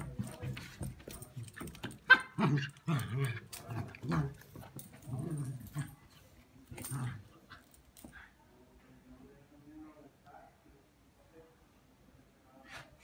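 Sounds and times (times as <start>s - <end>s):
dog growling and barking: 2.0s - 6.0s.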